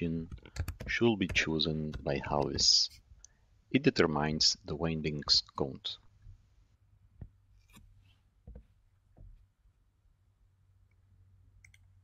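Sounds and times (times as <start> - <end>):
computer mouse clicks: 11.6 - 11.9.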